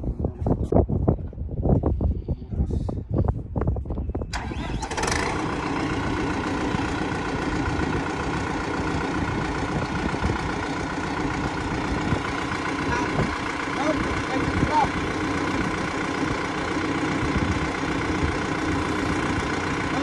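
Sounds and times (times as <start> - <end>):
engine starting and idling: 4.3 - 20.0.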